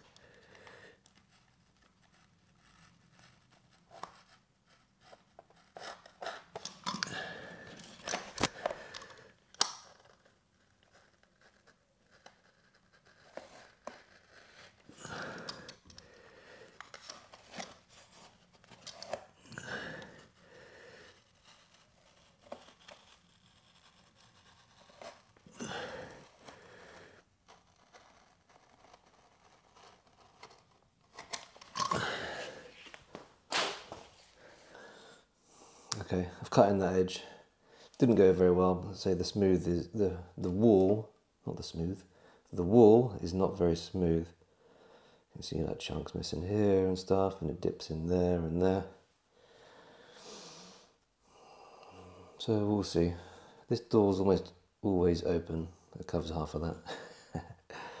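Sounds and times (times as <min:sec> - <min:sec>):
knife cutting vinyl flooring: 0:00.2 - 0:34.3.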